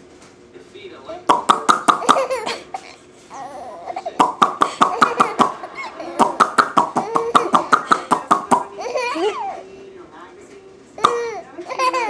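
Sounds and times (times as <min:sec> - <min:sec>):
baby laughing: 0:01.8 - 0:09.6, 0:11.0 - 0:12.0.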